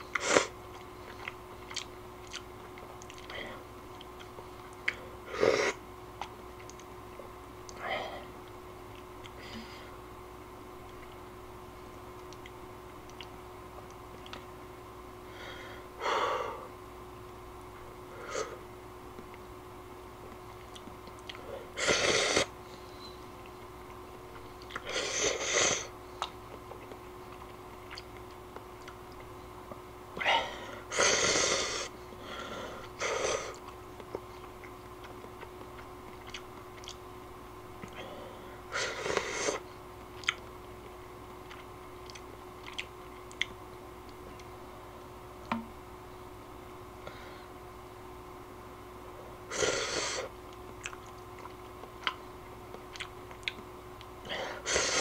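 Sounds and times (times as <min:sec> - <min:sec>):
chewing: 0:00.1 - 0:05.0, 0:12.2 - 0:14.5, 0:20.5 - 0:21.4, 0:23.4 - 0:24.9, 0:26.2 - 0:29.3, 0:33.5 - 0:37.0, 0:40.2 - 0:43.6, 0:50.5 - 0:54.1
person slurping noodles: 0:21.8 - 0:22.5, 0:24.8 - 0:25.9.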